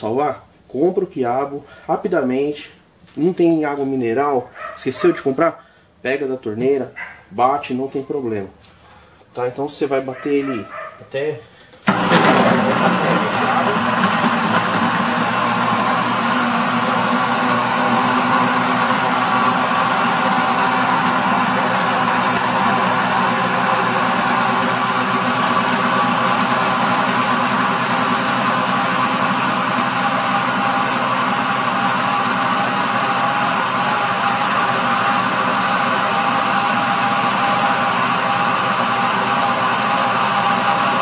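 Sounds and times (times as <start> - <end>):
blender motor running: 11.8 - 41.0.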